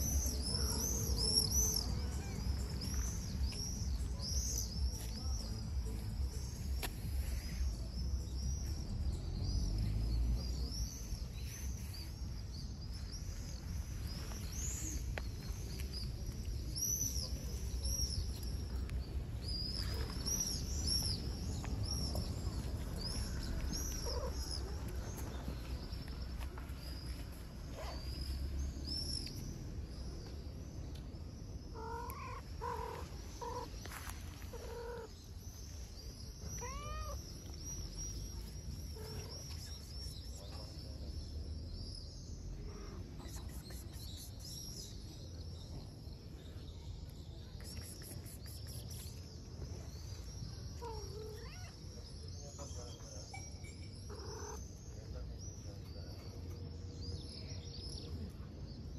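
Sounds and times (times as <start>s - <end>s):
cat meowing: 36.5s - 37.2s, 50.8s - 51.8s, 54.1s - 54.6s.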